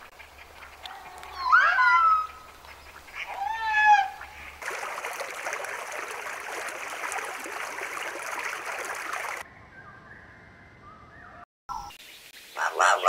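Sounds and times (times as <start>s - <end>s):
running water: 0.0s - 9.4s.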